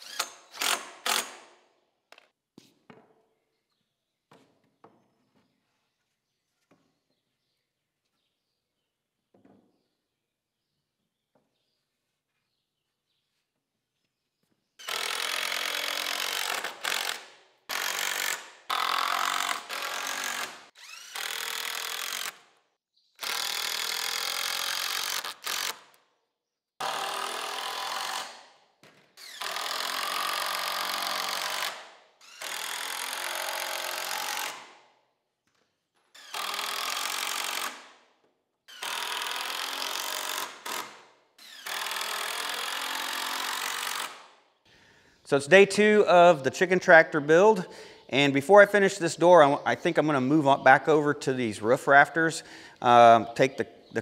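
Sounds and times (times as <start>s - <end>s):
cordless drill driving screws: 0.0s - 1.4s, 14.8s - 22.5s, 23.2s - 26.0s, 26.8s - 34.8s, 36.0s - 37.9s, 38.7s - 44.3s.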